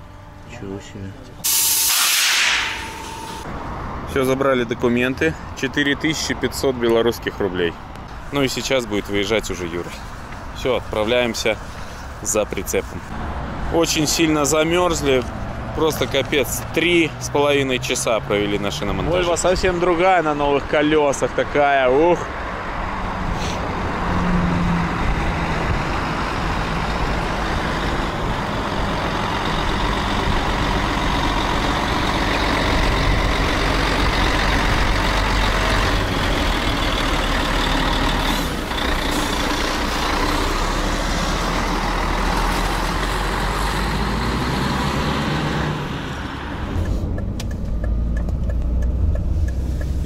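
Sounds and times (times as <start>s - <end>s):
road noise inside a car: 0.0s - 50.0s
truck diesel engine driving past: 22.6s - 50.0s.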